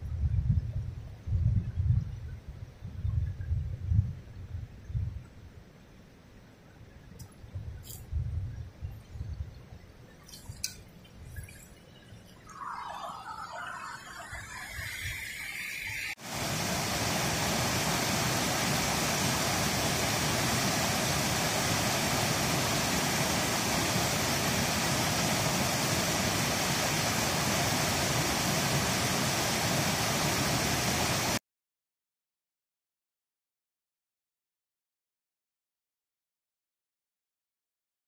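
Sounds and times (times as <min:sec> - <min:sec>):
loud rushing river water: 0:16.2 - 0:31.4.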